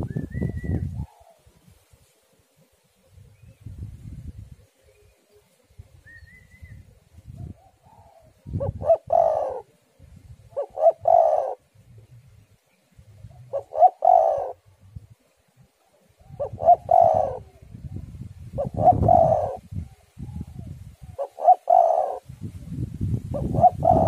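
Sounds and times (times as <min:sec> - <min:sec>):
dove cooing: 0:00.0 - 0:01.5, 0:04.7 - 0:12.1, 0:13.2 - 0:15.0, 0:15.8 - 0:22.3, 0:23.3 - 0:24.0.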